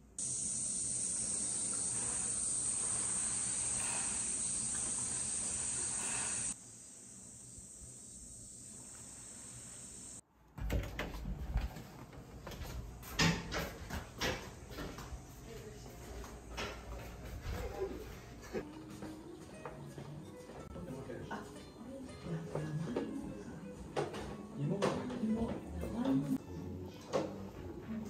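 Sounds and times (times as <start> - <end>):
cicadas droning: 0.0 - 10.2.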